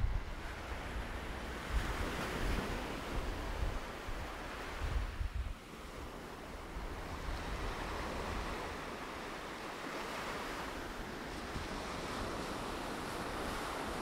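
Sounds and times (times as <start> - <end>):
wind buffeting microphone: 0.0 - 9.2
waves washing up a beach: 0.0 - 14.0.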